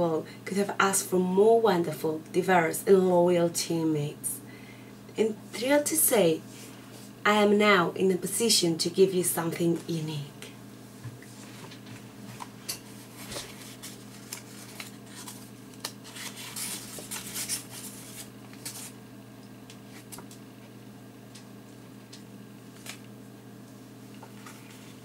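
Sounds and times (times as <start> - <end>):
steady low hum: 0.0 - 25.0
paper rustling and crackling: 12.4 - 19.0.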